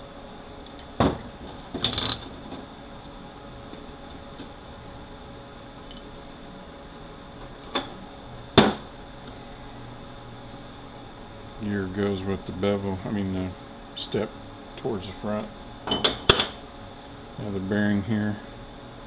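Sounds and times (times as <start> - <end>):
steady background hum: 0.0 - 19.0
steel parts clinking and knocking: 1.5 - 2.3.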